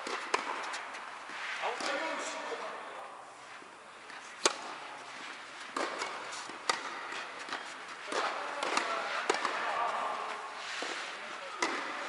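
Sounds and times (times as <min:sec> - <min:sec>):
tennis ball bouncing: 0:00.0 - 0:01.0, 0:04.4 - 0:11.0, 0:11.6 - 0:12.0
racket hitting tennis ball: 0:00.0 - 0:02.0, 0:04.4 - 0:12.0.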